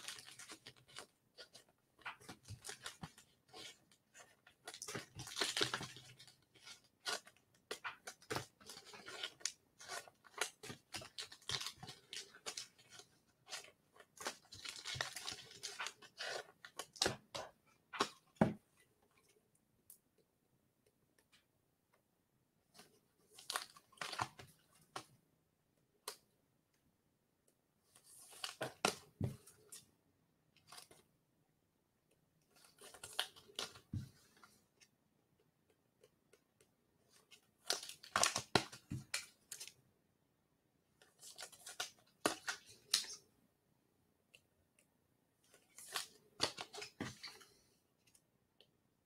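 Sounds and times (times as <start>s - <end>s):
card packaging crinkling: 4.6s - 6.3s.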